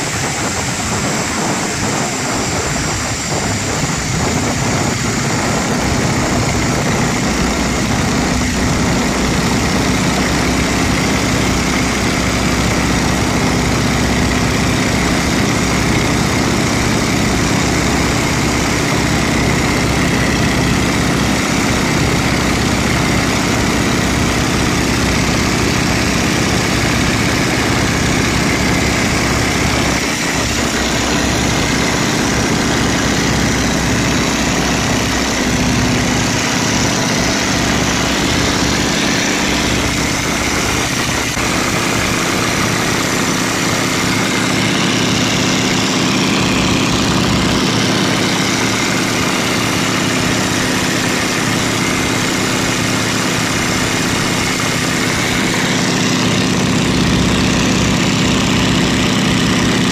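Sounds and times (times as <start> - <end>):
biplane engine and propeller: 0.0 - 59.9.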